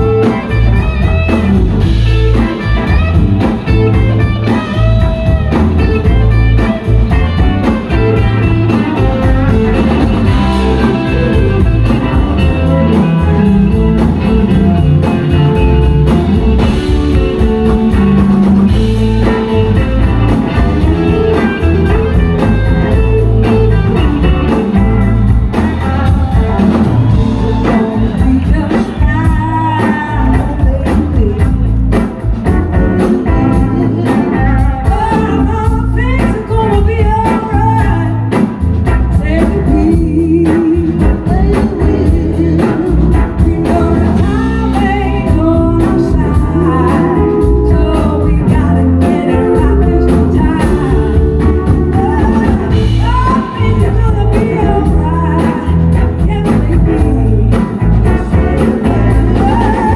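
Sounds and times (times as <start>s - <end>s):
blues-rock band playing: 0.0s - 59.9s
electric guitar: 0.0s - 59.9s.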